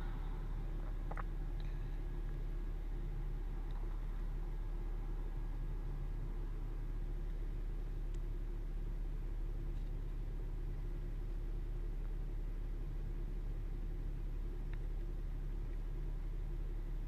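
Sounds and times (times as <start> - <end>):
road traffic rumble: 0.0 - 17.0
faint tick: 8.1 - 8.3.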